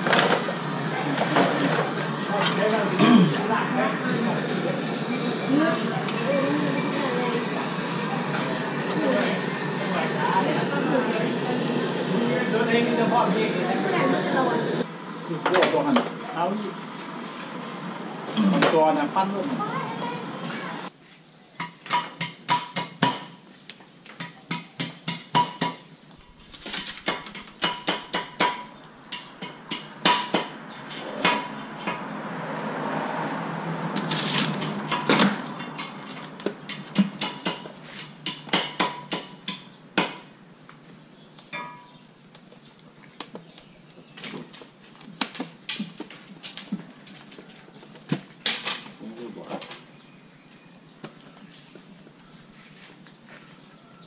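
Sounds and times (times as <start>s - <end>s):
rushing noise: 30.5s - 36.4s.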